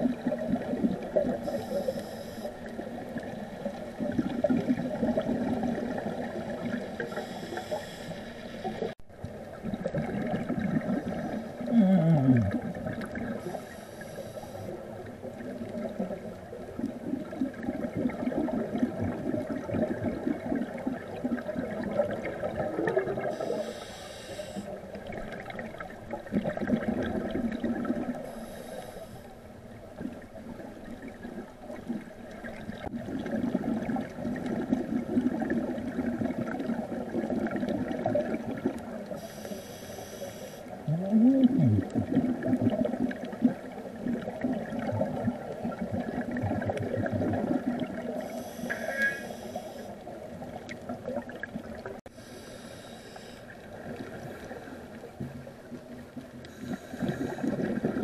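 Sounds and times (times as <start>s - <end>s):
exhaled air bubbling: 0.0s - 8.0s, 8.6s - 28.6s, 30.9s - 39.5s, 40.7s - 52.1s, 56.0s - 58.0s
regulator inhale hisses: 1.4s - 2.7s, 7.0s - 8.9s, 13.4s - 14.8s, 23.3s - 24.8s, 28.2s - 29.3s, 39.1s - 40.8s, 48.2s - 50.0s, 52.1s - 53.6s, 56.5s - 57.5s.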